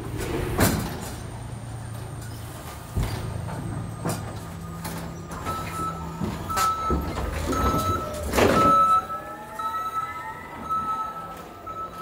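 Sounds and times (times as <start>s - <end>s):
knocks and loud clatter: 0.0s - 1.4s, 2.7s - 8.9s
forklift engine hum: 0.0s - 12.0s
reversing alarm beeping: 3.8s - 12.0s.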